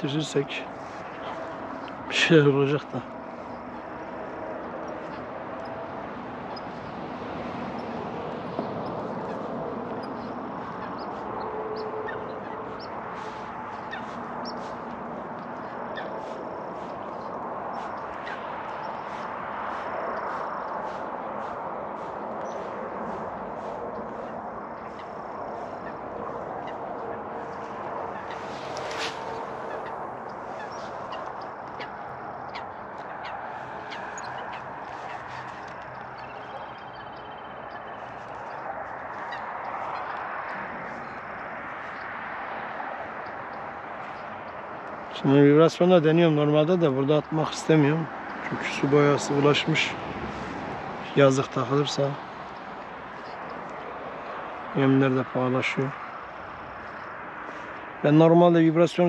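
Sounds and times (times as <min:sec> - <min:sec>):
small birds chirping: 0:00.0 - 0:45.9, 0:47.1 - 0:58.0
outdoor background noise: 0:00.0 - 0:59.0
waterfowl calling: 0:08.7 - 0:42.1.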